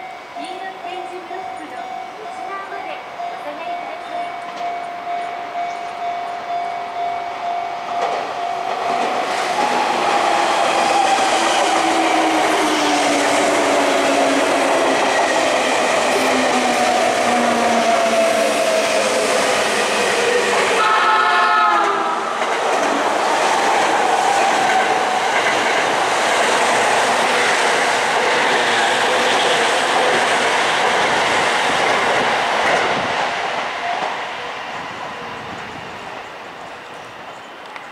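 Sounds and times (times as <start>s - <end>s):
train cars rushing and clattering: 0.0s - 37.9s
train horn blast: 20.8s - 22.3s.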